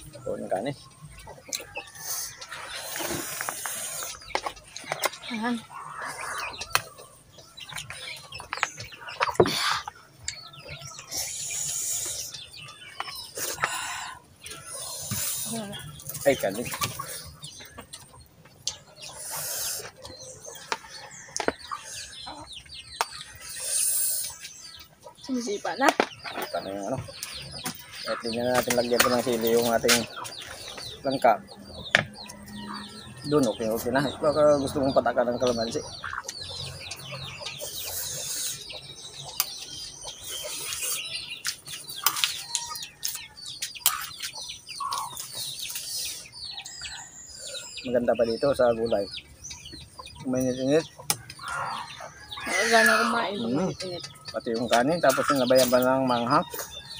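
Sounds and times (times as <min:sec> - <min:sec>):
eating sounds: 0:00.0 - 0:33.8, 0:35.6 - 0:47.9
birds chirping: 0:00.0 - 0:56.9
chickens clucking: 0:00.0 - 0:56.9.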